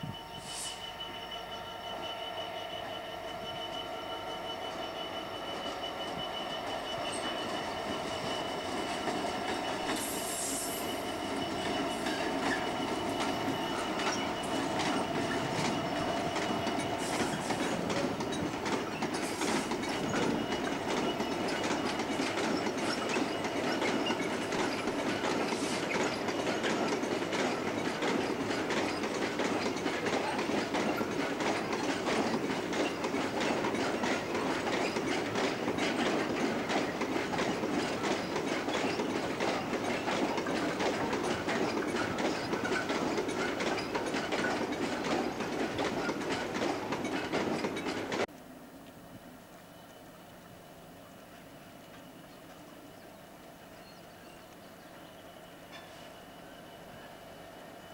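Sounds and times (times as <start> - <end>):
high wheel squeals: 0.0 - 48.2
diesel locomotive engine drone: 0.0 - 57.9
wagon wheels clattering on track: 5.6 - 48.3.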